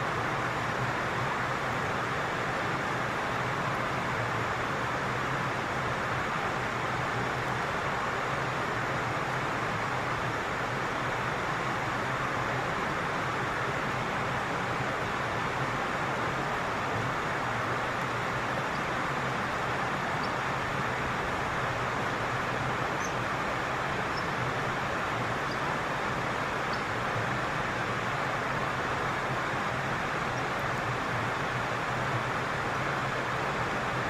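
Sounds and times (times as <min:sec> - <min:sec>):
stream water flowing: 0:00.0 - 0:34.0
faint high chirps: 0:23.0 - 0:23.3.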